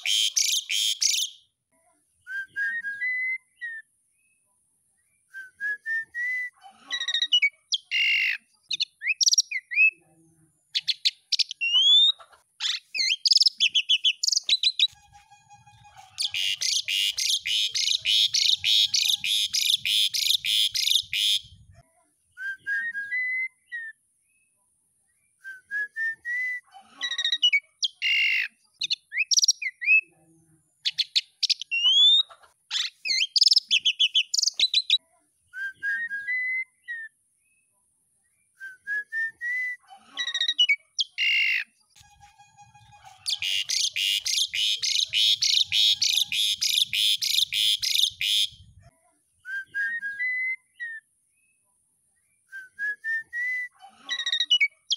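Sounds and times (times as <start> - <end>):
starling whistling song: 2.2 - 3.9, 5.2 - 6.6, 16.0 - 21.5, 22.3 - 24.0, 25.4 - 26.6, 35.5 - 37.1, 38.5 - 39.8, 43.1 - 48.6, 49.4 - 51.0, 52.4 - 54.8
bird chattering run: 16.0 - 21.5, 43.0 - 48.6.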